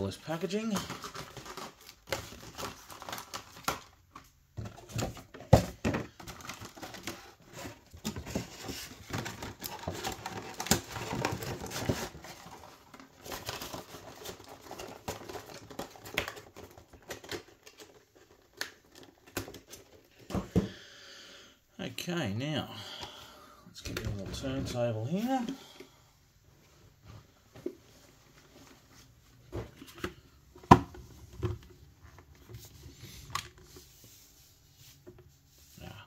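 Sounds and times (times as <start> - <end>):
plastic packaging crinkling: 0.4 - 4.0.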